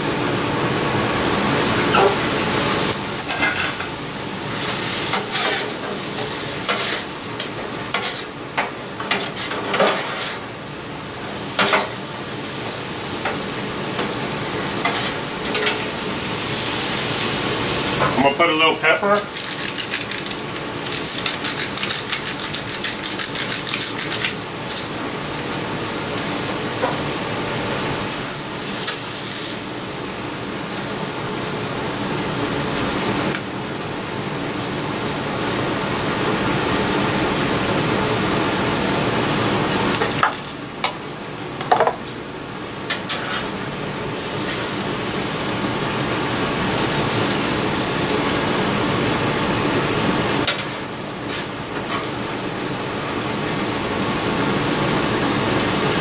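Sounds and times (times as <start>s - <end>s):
food sizzling on a griddle: 1.2s - 56.0s.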